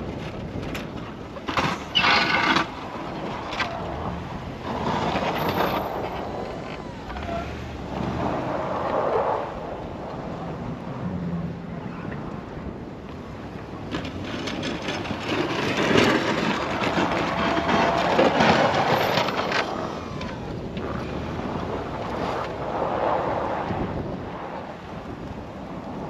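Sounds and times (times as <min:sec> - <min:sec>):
snowplow blade scraping snow: 0:01.5 - 0:09.5, 0:13.8 - 0:26.0
truck engine running: 0:13.2 - 0:22.8.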